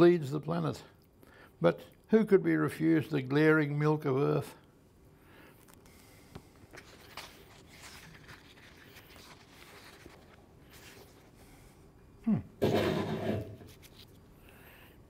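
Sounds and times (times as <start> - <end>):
book pages turning: 5.6 - 11.4, 13.6 - 14.2.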